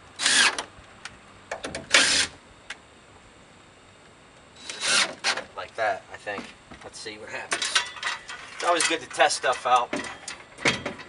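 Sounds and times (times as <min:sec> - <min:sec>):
cordless drill driving screws: 0:00.2 - 0:00.6, 0:01.9 - 0:02.3, 0:04.6 - 0:05.4.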